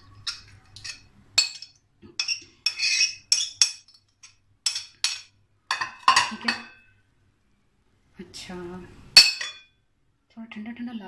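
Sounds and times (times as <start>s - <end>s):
spoon clinking on glass dish: 0.2s - 6.9s.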